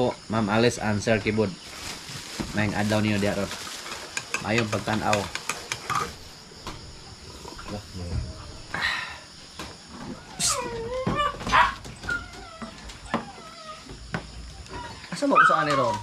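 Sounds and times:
dog whining and yelping: 10.2 - 16.0.

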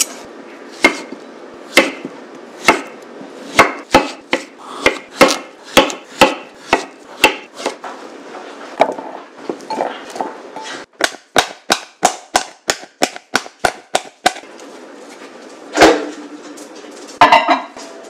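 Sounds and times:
knife striking cutting board: 0.8 - 7.8.

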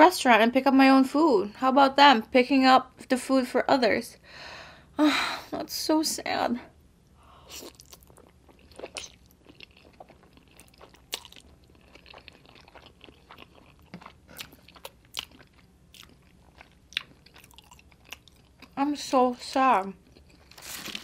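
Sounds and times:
person eating noodles: 7.4 - 18.6.

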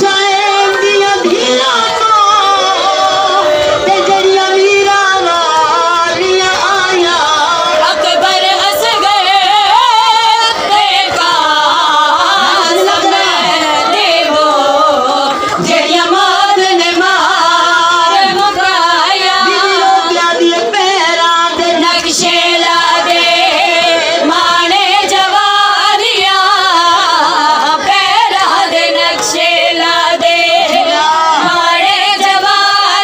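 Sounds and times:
woman singing a lament: 0.0 - 33.0.

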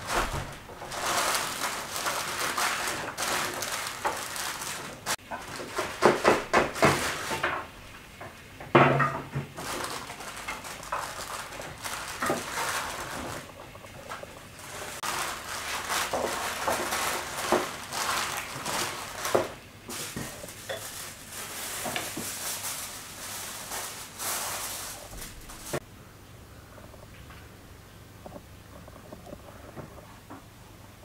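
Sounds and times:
aluminium foil crinkling: 0.0 - 8.0, 9.1 - 25.8
baking paper rustling and crinkling: 0.0 - 25.8.

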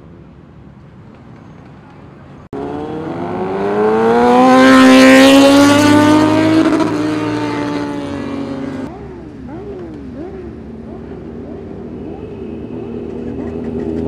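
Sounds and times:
motorcycle engine accelerating: 2.5 - 14.0.

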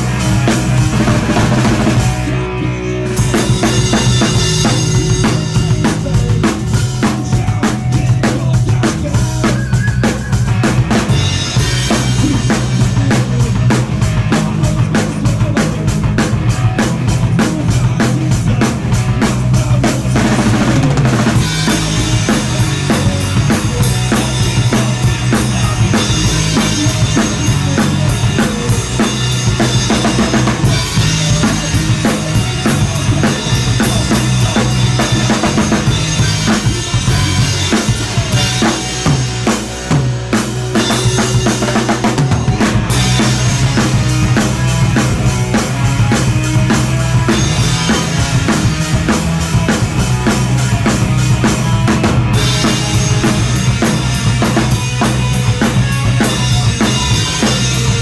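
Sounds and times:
bass and guitar: 0.0 - 58.0
drum kit: 0.0 - 58.0
person singing through speakers: 4.6 - 10.6.

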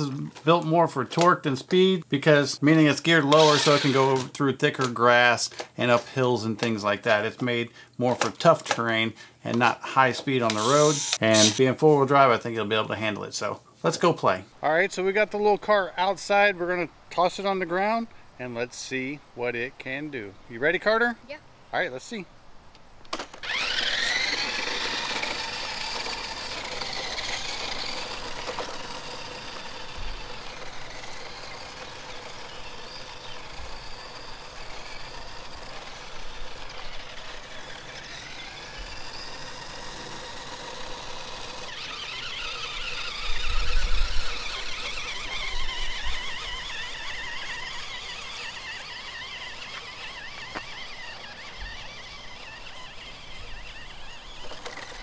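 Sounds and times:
toy truck motor whining: 3.1 - 6.0, 8.1 - 11.7, 23.1 - 55.0.

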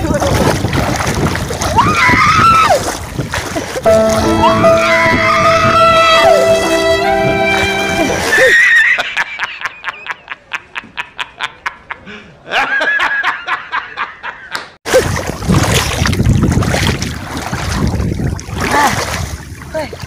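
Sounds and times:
wind on microphone: 0.0 - 3.8, 15.2 - 20.0
water splashing: 0.0 - 8.5, 14.9 - 20.0
man laughing loudly: 8.9 - 14.6.

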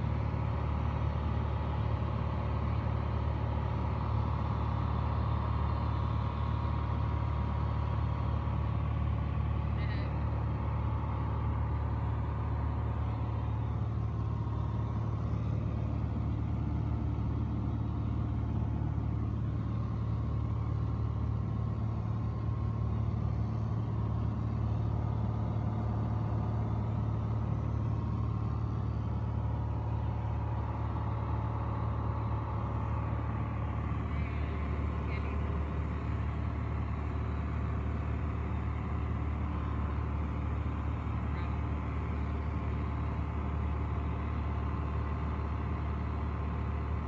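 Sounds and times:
aircraft engine and propeller droning: 0.0 - 47.0.

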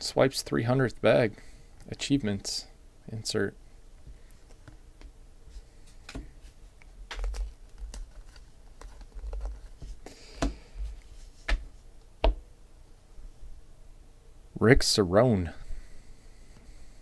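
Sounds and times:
cards flicking and clicking: 7.1 - 10.6.

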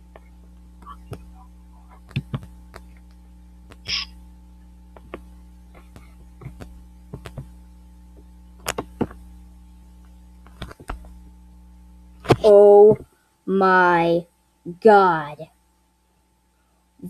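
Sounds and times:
steady low hum: 0.0 - 17.0
sharp clicks and knocks: 4.9 - 7.5, 8.2 - 9.2, 10.4 - 11.1.

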